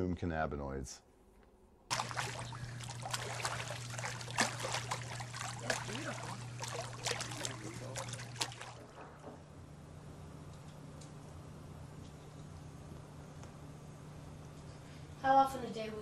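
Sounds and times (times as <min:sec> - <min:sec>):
low steady hum: 0:00.0 - 0:16.0
pool water lapping and splashing: 0:01.9 - 0:09.3.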